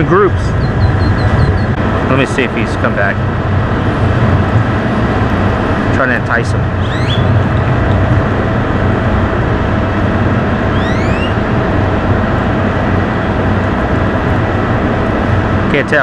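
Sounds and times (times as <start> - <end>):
wind noise: 0.0 - 15.7
ferry machinery drone: 0.0 - 16.0
short rising chirps: 6.8 - 7.3, 10.7 - 11.4.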